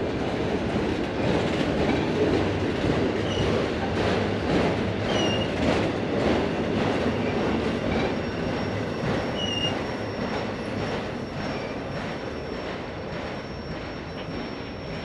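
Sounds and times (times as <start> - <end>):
train wheels rumbling on track: 0.0 - 15.0
high wheel squeals: 7.2 - 15.0.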